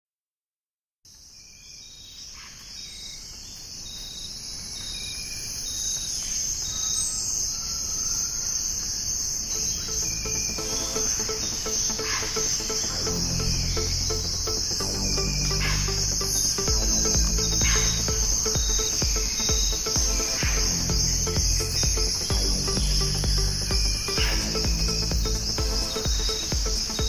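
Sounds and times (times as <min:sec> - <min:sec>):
music with pulsing beat: 0:09.6 - 0:27.0.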